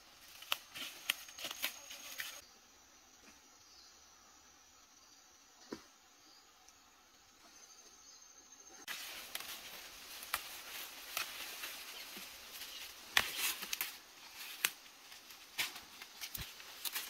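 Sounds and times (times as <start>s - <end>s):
leaves and ferns rustling: 0.0s - 2.4s, 8.8s - 17.0s
fern stems snapping: 0.2s - 2.4s, 8.9s - 17.0s.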